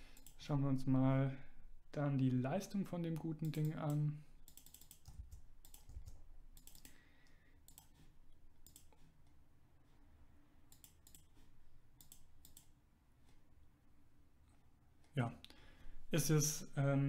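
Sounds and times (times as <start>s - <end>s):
keyboard and mouse clicks: 0.1s - 0.4s, 3.1s - 7.0s, 7.6s - 9.4s, 10.7s - 12.8s.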